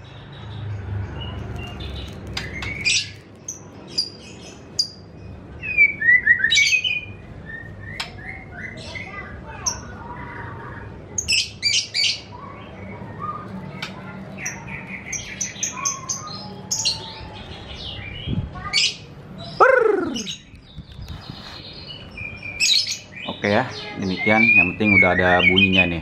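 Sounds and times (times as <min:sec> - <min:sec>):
songbird chirps and whistles: 0:05.6 - 0:09.1.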